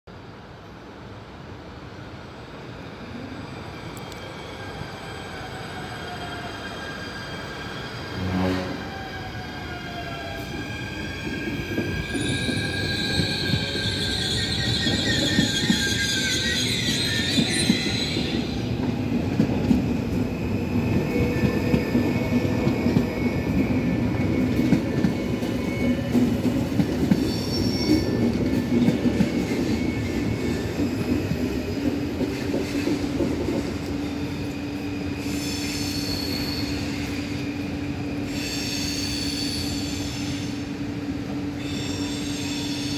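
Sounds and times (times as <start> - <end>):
rumble of trains running: 0.1 - 42.9
train wheel and brake squeal: 3.1 - 42.9
train horn blast: 8.1 - 8.9.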